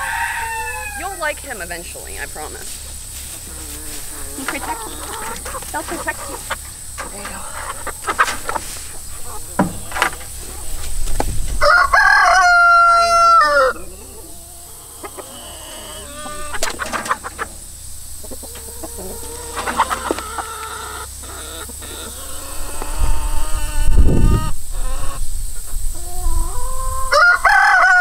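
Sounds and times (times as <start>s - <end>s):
rooster crowing: 0.0s - 1.2s, 11.5s - 17.4s, 18.3s - 25.3s, 26.0s - 28.0s
chickens clucking: 0.0s - 28.0s.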